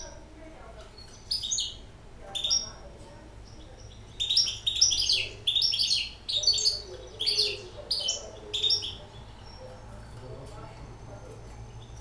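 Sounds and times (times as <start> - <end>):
bird singing rapid twittering song: 0.8 - 10.2.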